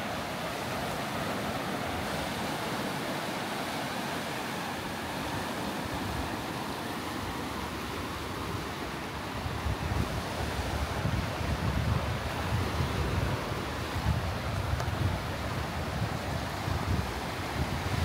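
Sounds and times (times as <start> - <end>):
waves washing over rocky shore: 0.0 - 18.0
wind gusting on microphone: 7.4 - 18.0.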